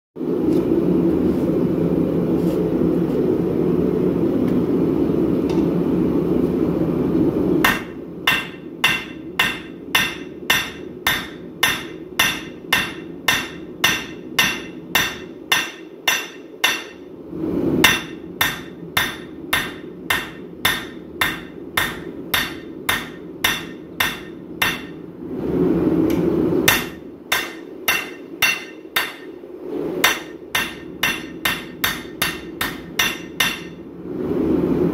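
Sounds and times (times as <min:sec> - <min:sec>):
hammer striking steel on anvil: 0:07.6 - 0:17.1, 0:17.8 - 0:25.0, 0:26.1 - 0:29.4, 0:30.0 - 0:33.8.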